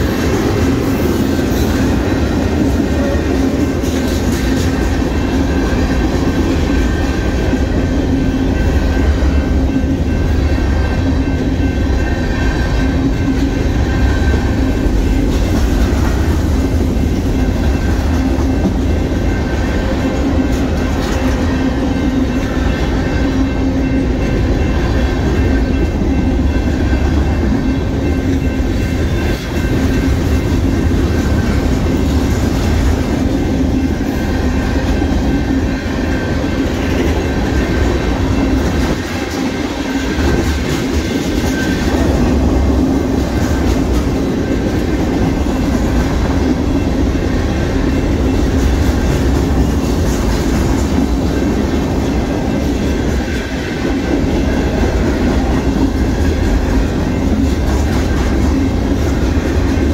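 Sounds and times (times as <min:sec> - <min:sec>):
clickety-clack over rail joints: 0:00.0 - 0:59.9
train wheels rumbling on rail: 0:00.0 - 0:59.9
steady ringing tone: 0:04.6 - 0:59.9.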